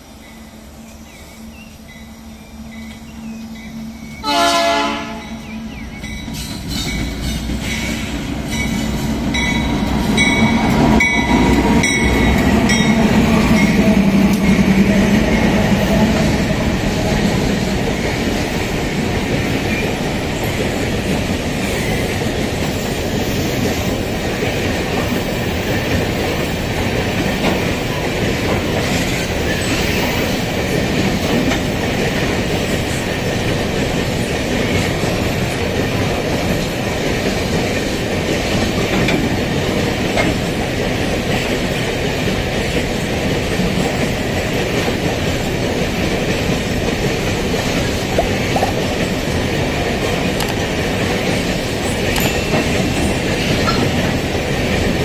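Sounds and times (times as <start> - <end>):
train wagons rumbling and clattering: 0.0 - 55.0
locomotive horn blast: 4.2 - 5.7.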